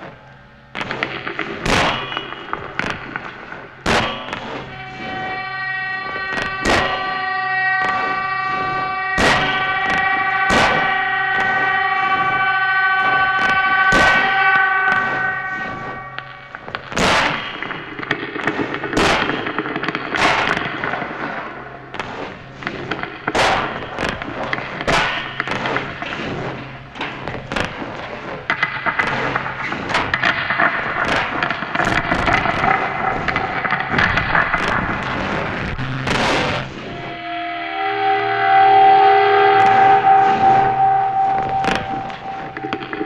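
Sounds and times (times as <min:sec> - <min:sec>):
dense noisy texture: 0:00.0 - 0:43.0
sharp cracks and crashes: 0:00.0 - 0:43.0
steady held tones: 0:00.0 - 0:43.0.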